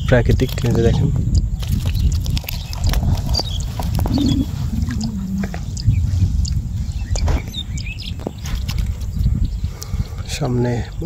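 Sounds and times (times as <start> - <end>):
low rumble: 0.2 - 9.7
bird chirps: 1.3 - 10.2
water dripping and splashing: 1.6 - 5.6.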